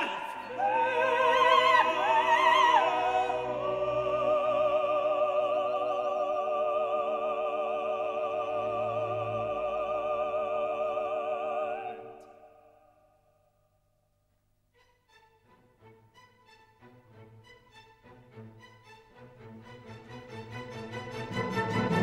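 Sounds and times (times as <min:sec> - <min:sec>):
operatic voice singing with vibrato: 0:00.0 - 0:12.8.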